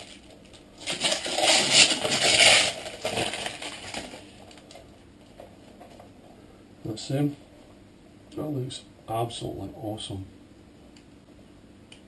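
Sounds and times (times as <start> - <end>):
plastic cover rustling: 0.0 - 6.0.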